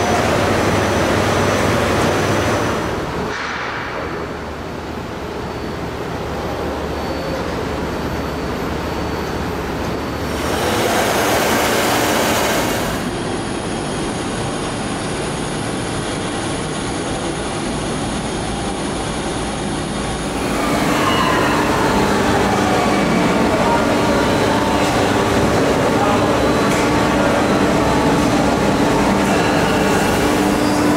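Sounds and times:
milling machine cutting metal: 0:10.2 - 0:13.1.

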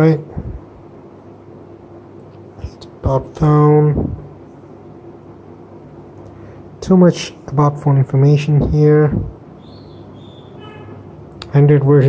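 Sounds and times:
person speaking: 0:00.0 - 0:00.7, 0:02.6 - 0:04.4, 0:06.8 - 0:09.4, 0:11.4 - 0:12.0
faint low hum: 0:00.0 - 0:12.0.

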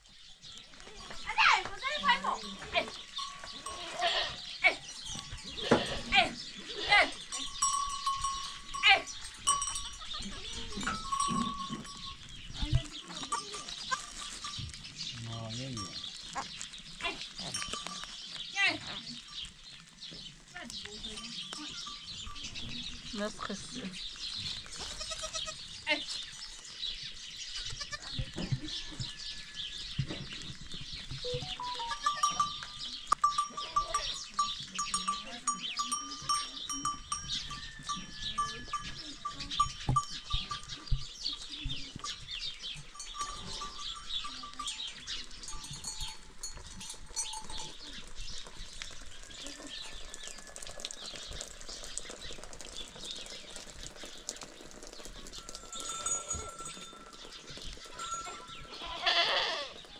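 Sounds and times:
animal neck bells clinking: 0:00.5 - 0:27.6, 0:31.2 - 0:59.7.

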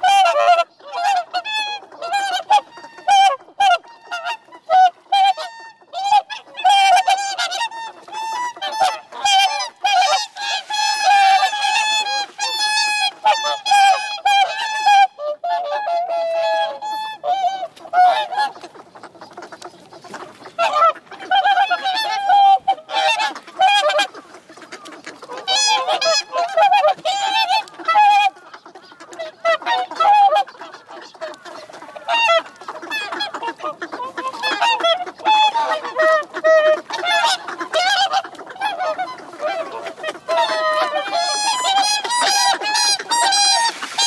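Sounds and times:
swans honking: 0:00.0 - 0:44.0.

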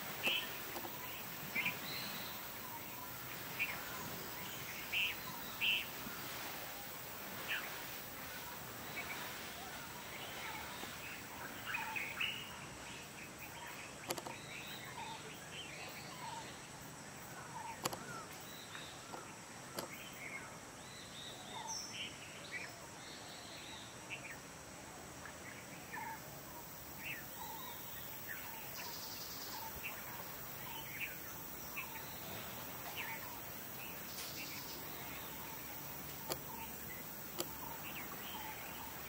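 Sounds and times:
many birds chirping: 0:00.0 - 0:24.5, 0:25.2 - 0:39.0
steady background hiss: 0:00.0 - 0:39.0.

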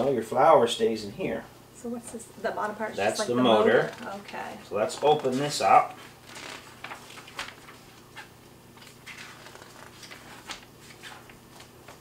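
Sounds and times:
paper rustling: 0:04.9 - 0:12.0.

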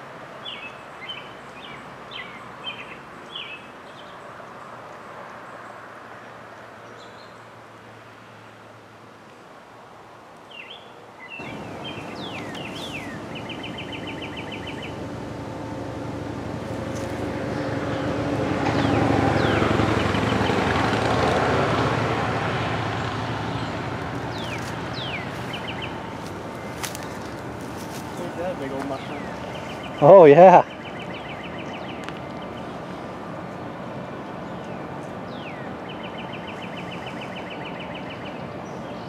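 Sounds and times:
songbirds chirping: 0:00.0 - 0:09.6, 0:10.2 - 0:21.4, 0:22.1 - 0:39.0
car driving past: 0:11.4 - 0:34.4.

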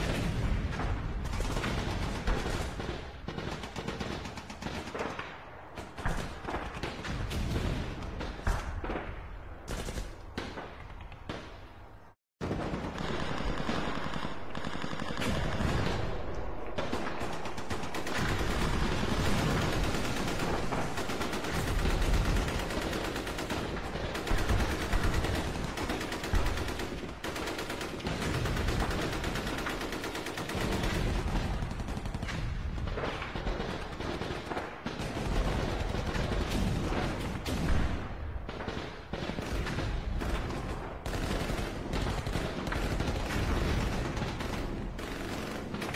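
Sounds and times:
loud gunshots: 0:00.0 - 0:10.7, 0:12.4 - 0:45.9
automatic gunfire: 0:12.4 - 0:37.3.

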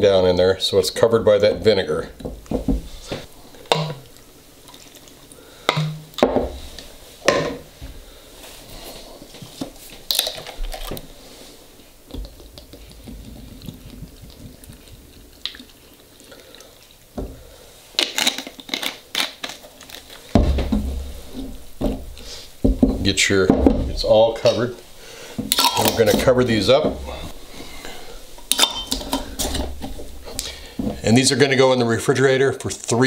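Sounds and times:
vinegar trickling into jars: 0:03.6 - 0:05.9, 0:12.1 - 0:19.2, 0:25.5 - 0:31.6.

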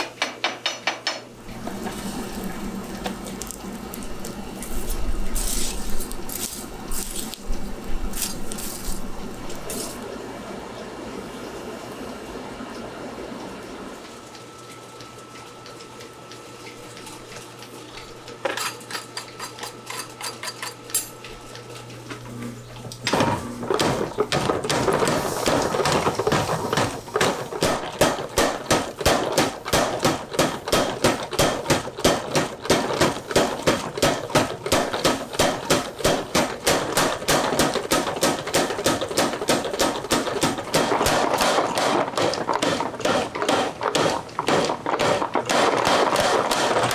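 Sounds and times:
forge humming: 0:00.2 - 0:46.9
power hammer pounding steel: 0:23.7 - 0:46.9.

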